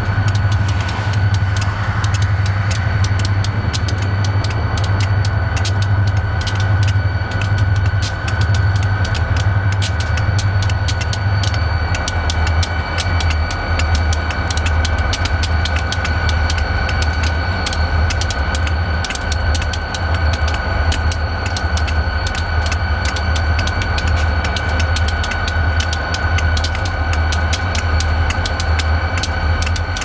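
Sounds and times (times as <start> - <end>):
diesel locomotive idling: 0.0 - 30.0
steady high whine: 0.0 - 30.0
quick irregular clicking: 0.2 - 30.0.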